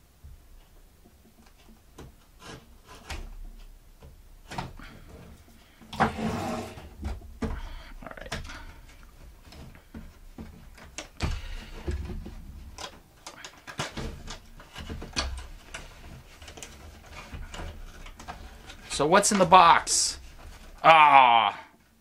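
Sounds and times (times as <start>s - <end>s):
cardboard scraping and rubbing: 6.0s - 7.0s, 13.9s - 20.8s.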